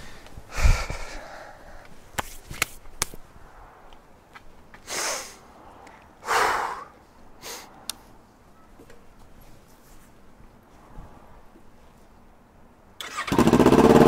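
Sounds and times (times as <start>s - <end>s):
man breathing out heavily: 0.0s - 2.0s, 4.8s - 7.8s.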